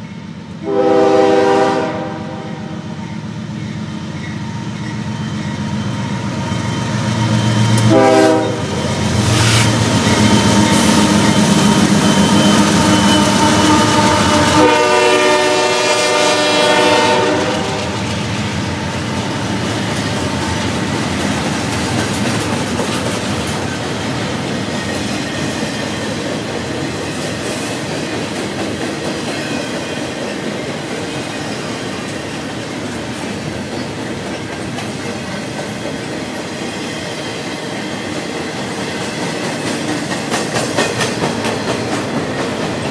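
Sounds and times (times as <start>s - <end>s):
diesel locomotives passing: 0.0s - 42.9s
train horn: 0.6s - 3.0s, 7.8s - 8.8s, 12.5s - 18.1s
train wheel clatter: 3.0s - 42.9s.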